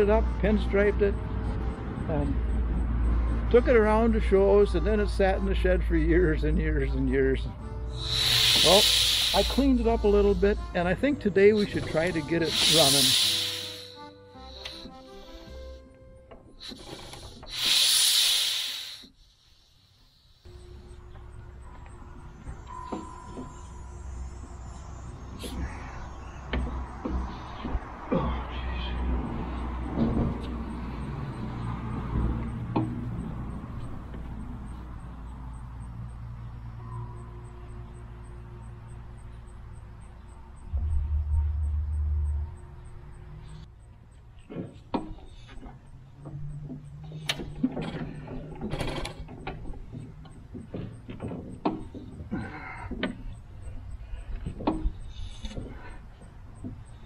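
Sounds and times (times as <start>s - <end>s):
engine mechanism clicking and clanking: 29.2s - 57.0s
steady low rumble: 39.2s - 43.8s
engine flywheel turned by hand: 44.4s - 57.0s.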